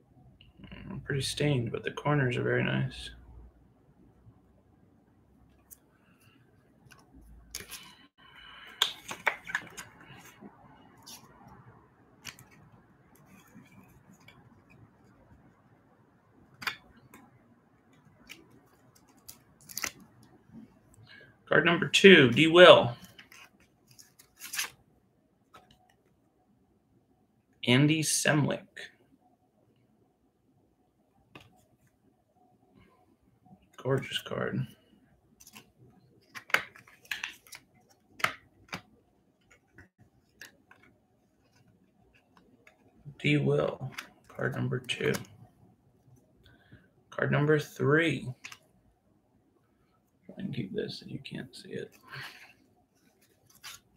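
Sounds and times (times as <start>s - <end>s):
card rustling into plastic sleeve: 6.8s - 11.3s, 18.2s - 20.2s, 22.3s - 24.8s, 35.4s - 42.9s, 51.8s - 53.9s.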